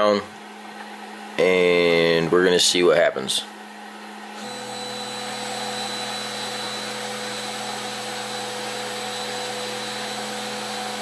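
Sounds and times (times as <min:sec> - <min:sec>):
printer whirring hum: 0:03.4 - 0:11.0.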